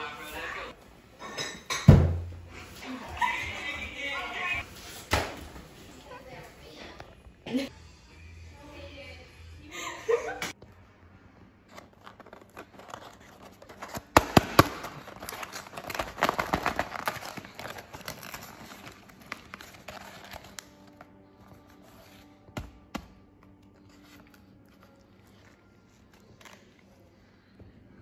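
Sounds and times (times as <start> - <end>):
paper crinkling and tearing: 11.7 - 22.8.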